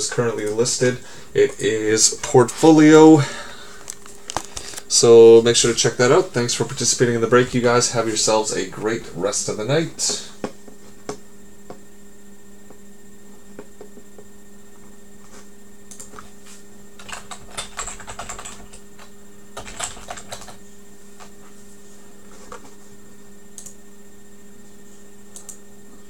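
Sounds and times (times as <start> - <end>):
low electrical hum: 0.0 - 26.0
typing on computer keyboard: 17.0 - 20.6.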